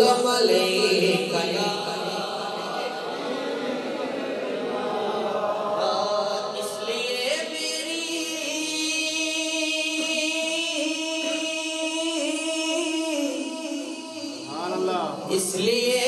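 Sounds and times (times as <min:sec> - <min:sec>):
man singing into a microphone: 0:00.0 - 0:03.2, 0:05.8 - 0:16.0.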